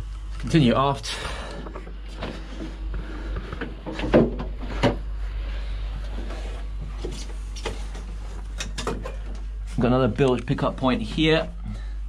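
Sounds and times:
steady low hum: 0.0 - 12.0
knocks and clunks in narrow tunnel: 1.4 - 5.1.

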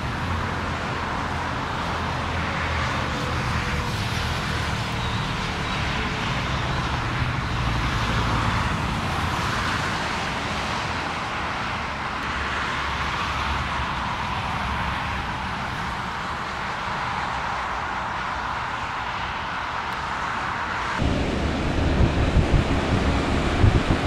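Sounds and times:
jet engine rushing: 20.4 - 24.0.

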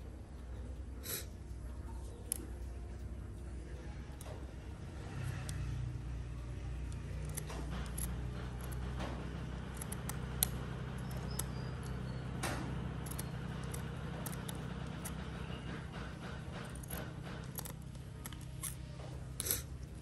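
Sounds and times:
steady low hum: 0.0 - 20.0
scissors snipping fabric: 6.8 - 20.0.

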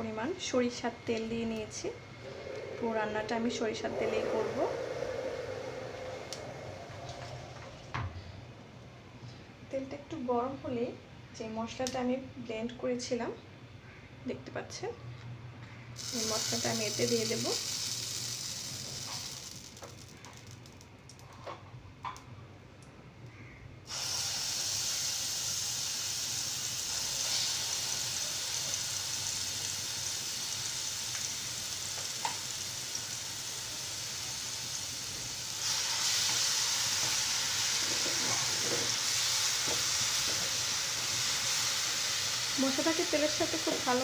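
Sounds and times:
spice paste sizzling in oil: 16.0 - 20.6, 23.9 - 44.0.

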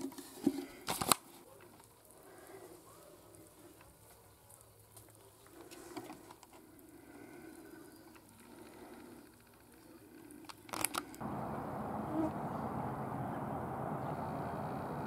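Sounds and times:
outdoor noise rush: 10.8 - 15.0.

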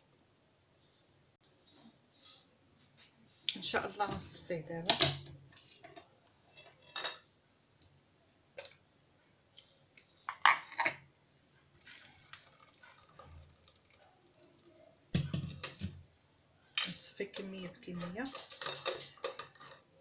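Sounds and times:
juice pouring through strainer: 11.7 - 14.8.

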